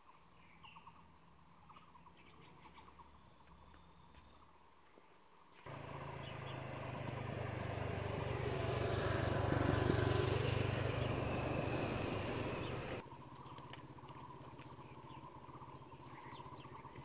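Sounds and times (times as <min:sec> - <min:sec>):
motor vehicle passing: 0:05.7 - 0:13.0.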